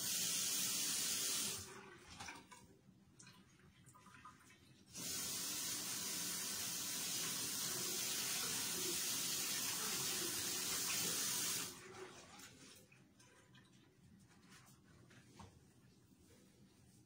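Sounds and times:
tap running water into sink: 0:05.0 - 0:11.8.

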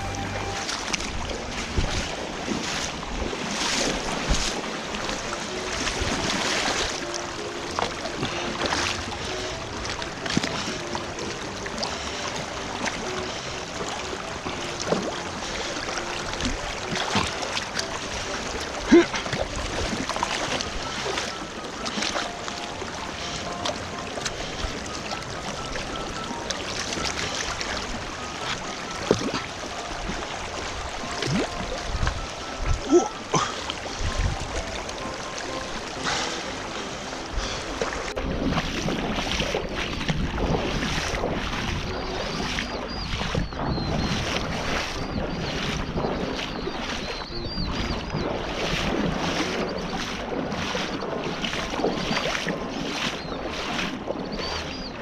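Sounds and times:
wind on microphone: 0:00.0 - 0:07.4, 0:22.8 - 0:55.0
stream water running and splashing: 0:00.0 - 0:55.0
water gurgling plops: 0:00.0 - 0:55.0.

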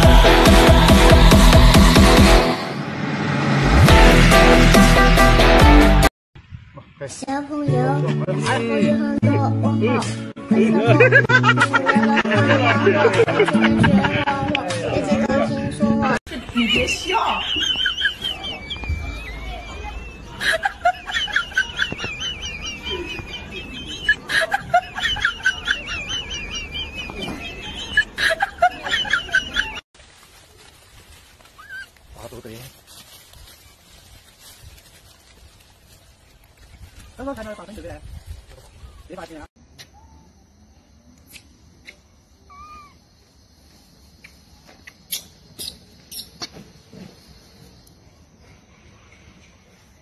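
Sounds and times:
wavering whistle-like tone: 0:17.7 - 0:20.3
bird-like chirps and clucks: 0:20.8 - 0:29.8
baby monkey squeaking: 0:31.6 - 0:31.9, 0:42.5 - 0:43.0, 0:44.8 - 0:46.5.

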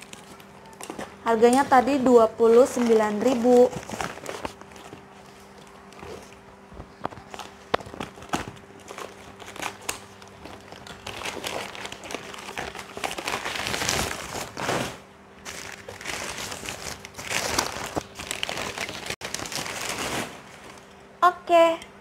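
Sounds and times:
newspaper crumpling: 0:02.5 - 0:06.4, 0:07.1 - 0:20.8.

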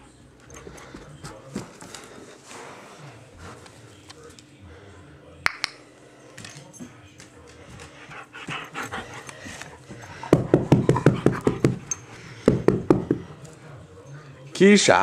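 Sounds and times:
puppy panting: 0:07.8 - 0:12.4.

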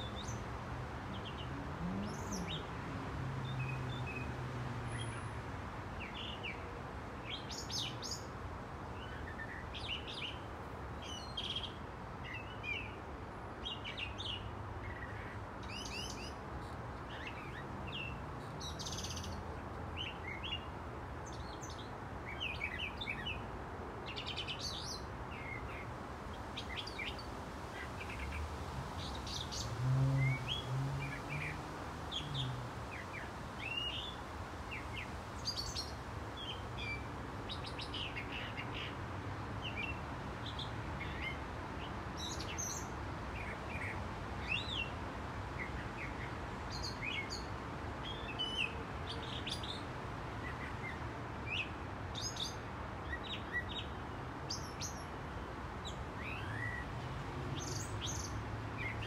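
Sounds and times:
songbird chirping phrases: 0:00.0 - 0:04.4, 0:29.0 - 0:39.0.

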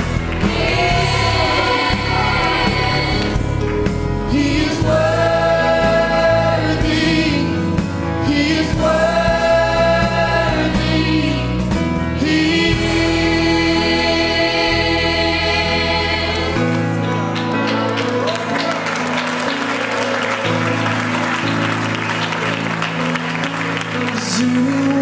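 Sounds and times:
choir singing gospel song: 0:00.0 - 0:17.1.

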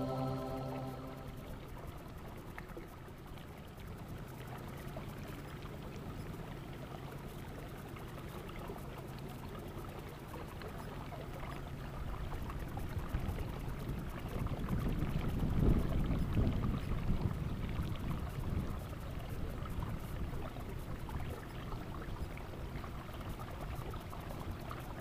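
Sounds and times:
low motor hum: 0:00.0 - 0:01.7.

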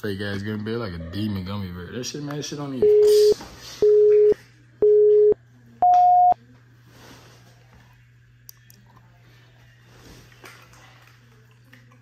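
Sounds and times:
countdown beeps: 0:02.8 - 0:06.4.

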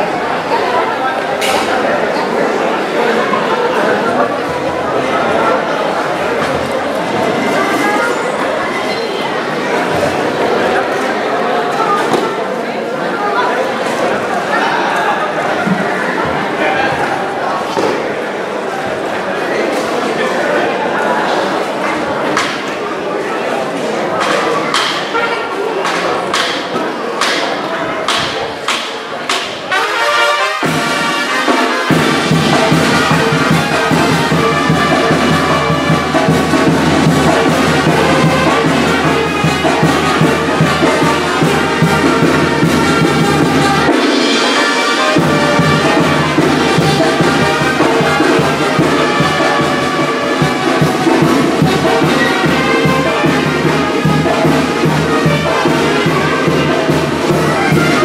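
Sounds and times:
brass band playing: 0:25.0 - 0:25.8, 0:29.6 - 0:58.0.

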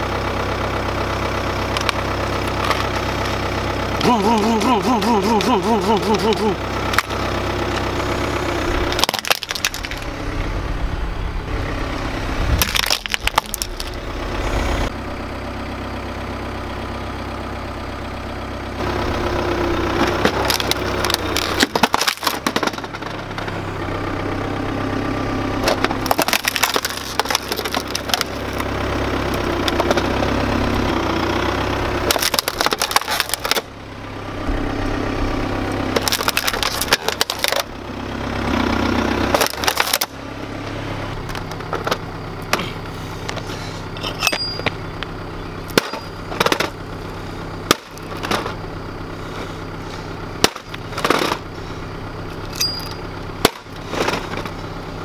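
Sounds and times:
car engine idling: 0:00.0 - 0:55.0
plastic cracking under car tyre: 0:08.9 - 0:10.1, 0:12.6 - 0:14.0, 0:20.0 - 0:23.0, 0:25.6 - 0:28.7, 0:32.0 - 0:33.7, 0:35.9 - 0:37.7, 0:39.3 - 0:40.1, 0:47.7 - 0:48.5.

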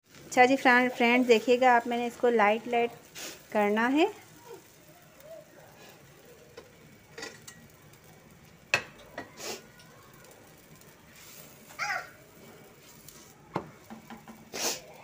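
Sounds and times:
faint sizzle: 0:00.0 - 0:15.0
utensil clinking on pan: 0:06.6 - 0:07.8.

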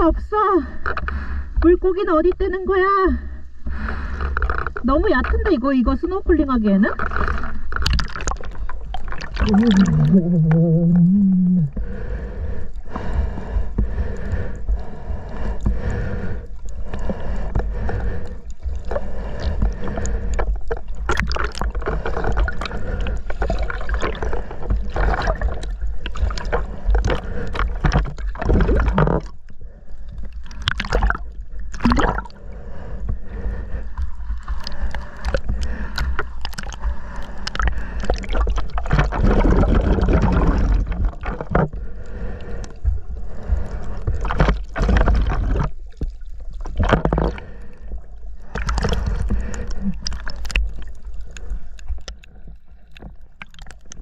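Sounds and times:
low rumble: 0:00.0 - 0:53.3
water sloshing and gurgling: 0:00.0 - 0:54.0
clicks and splashes: 0:06.9 - 0:11.2, 0:18.7 - 0:29.5, 0:30.1 - 0:32.4, 0:34.0 - 0:41.8, 0:43.4 - 0:47.5, 0:48.4 - 0:54.0.

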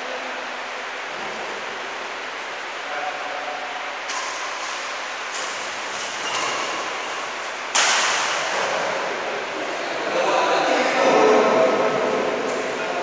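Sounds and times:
steady background hiss: 0:00.0 - 0:13.0
rackets striking shuttlecock: 0:07.7 - 0:08.6.

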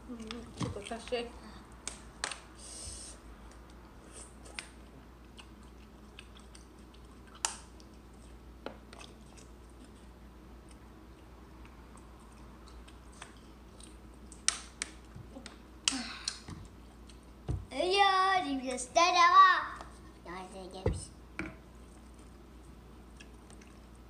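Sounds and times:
person chewing fruit: 0:03.4 - 0:14.4, 0:16.2 - 0:17.4, 0:21.7 - 0:24.0.

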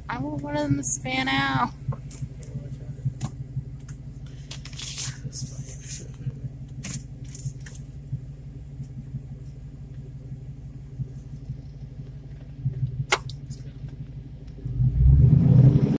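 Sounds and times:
car rumble from inside cabin: 0:00.0 - 0:15.9
sharp click: 0:13.1 - 0:13.6.

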